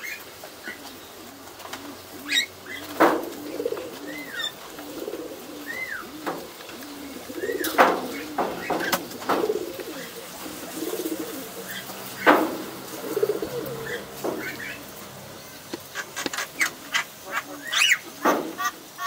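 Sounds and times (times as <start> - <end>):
pigeons cooing: 0.0 - 19.0
sharp knocks: 12.2 - 12.7.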